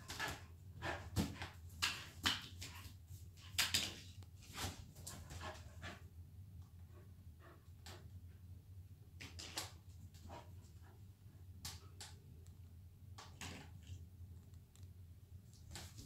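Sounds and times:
low steady hum: 0.0 - 16.0
dog claws clicking on tiles: 1.1 - 4.2.

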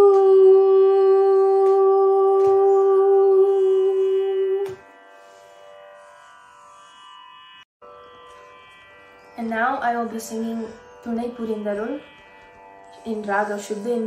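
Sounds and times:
woman singing long note: 0.0 - 4.8
tanpura drone: 0.0 - 14.0.

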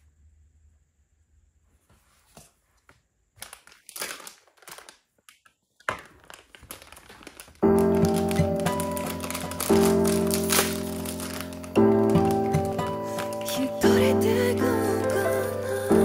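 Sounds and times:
crinkling and rustling: 1.7 - 14.6
background music with held notes: 7.6 - 16.0.

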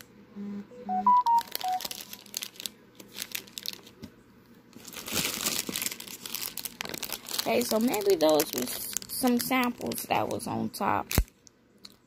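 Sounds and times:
short electronic beeps: 0.8 - 2.0
plastic bag crinkling: 1.3 - 4.0, 4.8 - 12.0.

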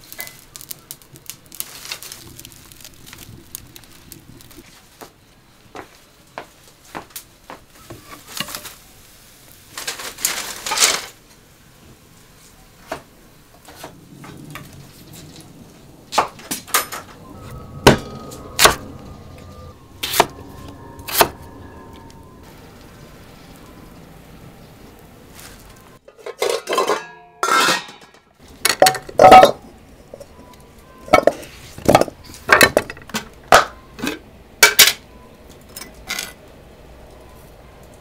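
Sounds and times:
crackly rustle: 0.0 - 26.0.

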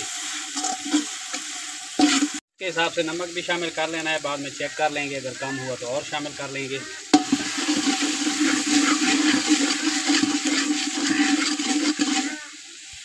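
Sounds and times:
food sizzling in hot oil: 0.0 - 13.0
metal ladle knocking pot: 7.1 - 12.4.

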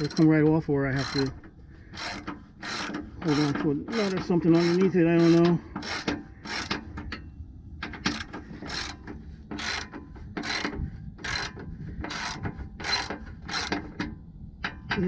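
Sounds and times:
ratchet wrench clicking: 0.0 - 0.3, 1.0 - 1.3, 2.0 - 6.8, 9.6 - 13.8.

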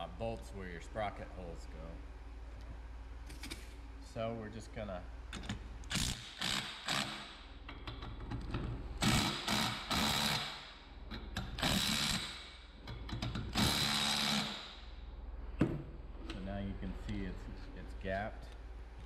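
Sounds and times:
cordless power tool running: 13.5 - 14.6.

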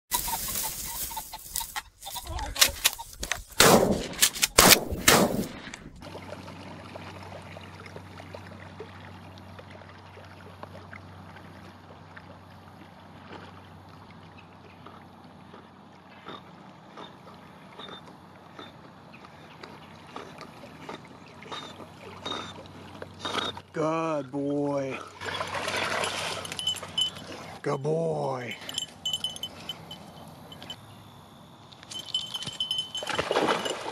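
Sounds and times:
loud gunshot-like bangs: 3.6 - 5.6
dog swimming splashes: 5.9 - 23.7, 25.0 - 27.6, 32.2 - 33.9.

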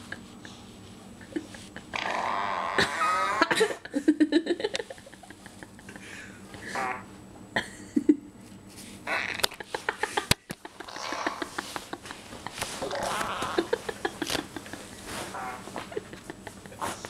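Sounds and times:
fart sounds from phone: 1.9 - 3.5, 9.0 - 9.6, 10.8 - 11.5, 12.8 - 13.7, 15.3 - 15.6
towel rustling: 11.6 - 17.0.

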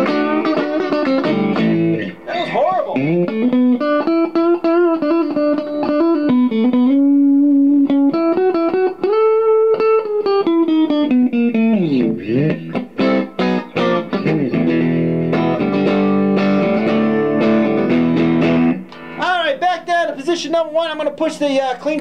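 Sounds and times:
clean electric guitar notes: 0.0 - 19.2
electric guitar chords strummed: 0.0 - 19.9.

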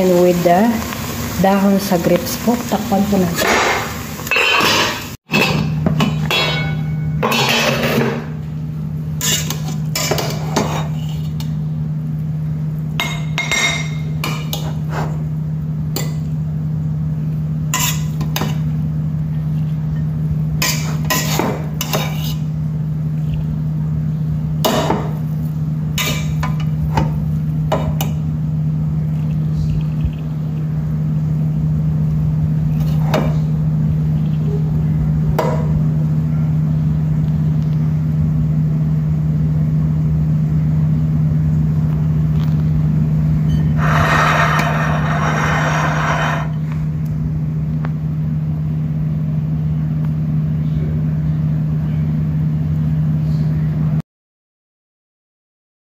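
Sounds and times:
pots and utensils clinking: 3.4 - 8.4, 9.2 - 11.5, 13.0 - 15.1
steady low hum: 26.8 - 49.9.

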